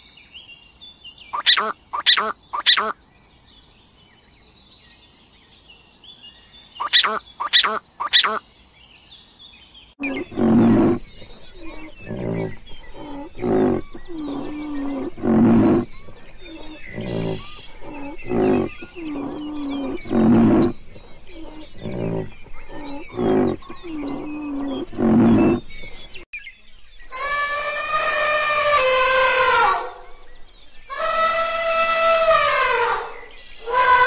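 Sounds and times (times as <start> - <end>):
elephant trumpeting: 1.4 - 2.9, 6.8 - 8.4, 10.0 - 25.7, 27.2 - 30.0
rhinoceros grunting: 10.0 - 26.2.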